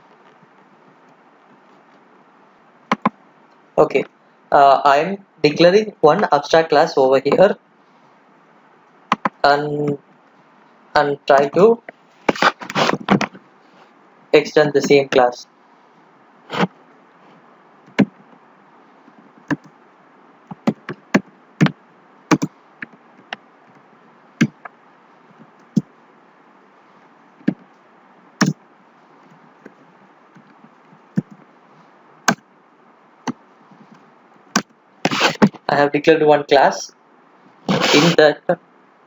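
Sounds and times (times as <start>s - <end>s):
faint steady hiss: 0.0s - 39.0s
computer keyboard keystrokes: 2.9s - 3.2s, 22.3s - 23.4s.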